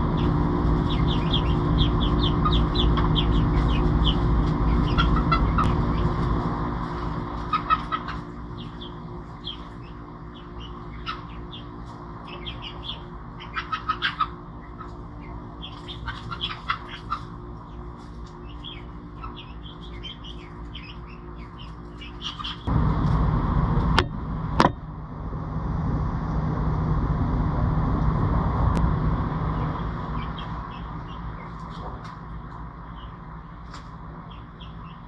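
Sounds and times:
birds chirping: 0.0 - 22.7, 29.5 - 35.0
steady low hum: 0.0 - 35.0.

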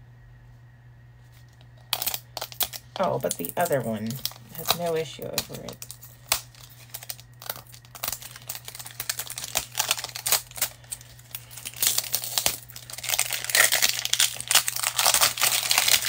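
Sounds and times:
plastic wrapping crackling and tearing: 1.9 - 16.0.

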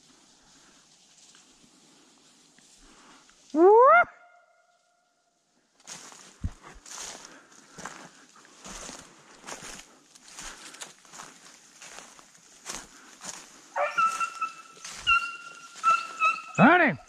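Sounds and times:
footsteps crunching through dry leaves: 5.8 - 16.6
hounds baying: 13.8 - 17.0.

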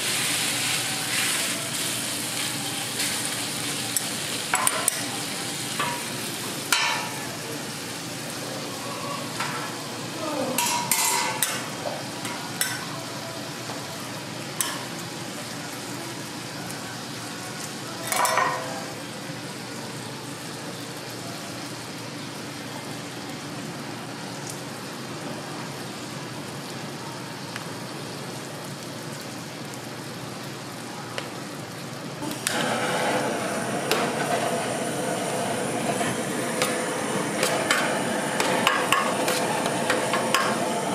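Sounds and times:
bacon and egg sizzling on griddle: 0.0 - 40.9
metal utensils clattering: 10.6 - 11.7, 18.1 - 18.7
blowtorch hissing: 32.2 - 40.9.

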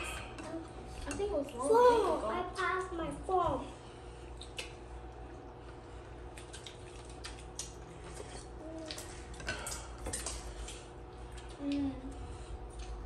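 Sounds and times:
steady low hum: 0.0 - 13.0
chewing: 4.3 - 13.0.

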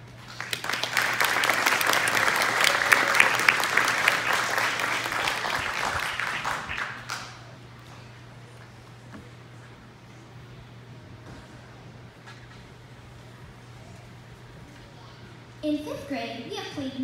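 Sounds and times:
audience applauding: 0.2 - 7.6.

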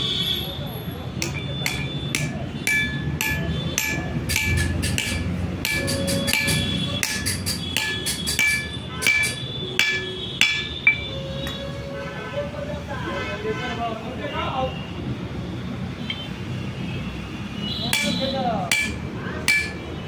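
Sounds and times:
hammer striking metal: 1.2 - 11.6, 17.9 - 20.0.

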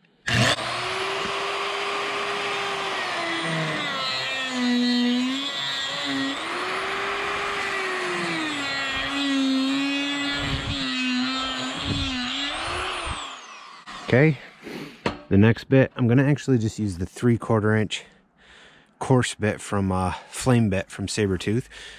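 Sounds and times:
die grinder cutting wood: 0.3 - 14.9.

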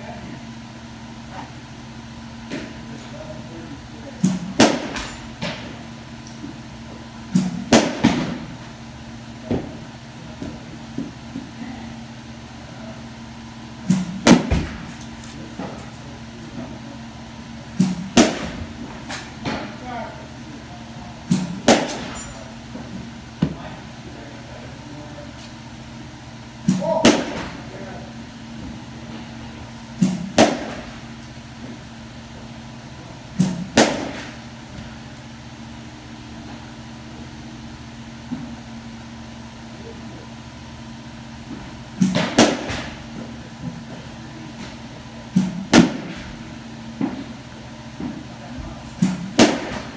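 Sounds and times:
steady low hum: 0.0 - 49.9
bat cracking ball: 4.3 - 5.6, 7.4 - 8.5, 13.9 - 14.9, 17.8 - 19.5, 21.3 - 22.1, 26.7 - 27.6, 30.1 - 31.0, 33.4 - 34.4, 42.0 - 43.0, 45.4 - 46.2, 49.0 - 49.9
bat cracking softball: 7.4 - 8.4, 21.3 - 22.1, 30.1 - 30.9, 33.4 - 34.4, 42.0 - 43.0, 49.0 - 49.9.

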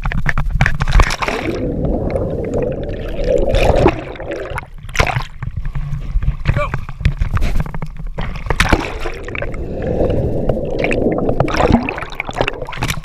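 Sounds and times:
water splashing and lapping: 0.7 - 13.0
muffled underwater bubbling: 0.9 - 5.3, 8.1 - 13.0
sharp splash: 8.5 - 9.5.

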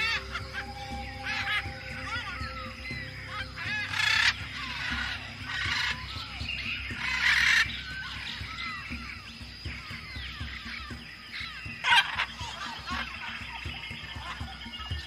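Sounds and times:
steady high tone: 0.0 - 9.6
birds chirping: 0.0 - 15.0
harsh bird squawks: 0.0 - 15.0
low hum: 0.0 - 15.0.

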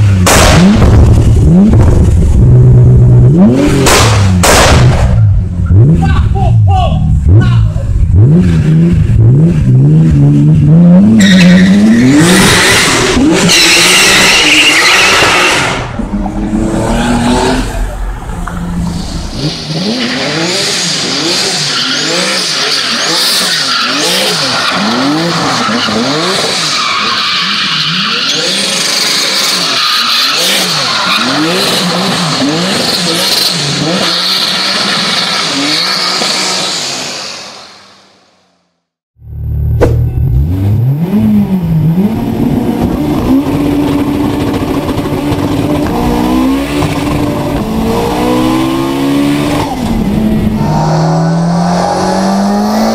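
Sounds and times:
car engine revving: 0.0 - 6.4, 7.0 - 37.7, 39.2 - 52.9
tyre squeal: 11.1 - 16.0.

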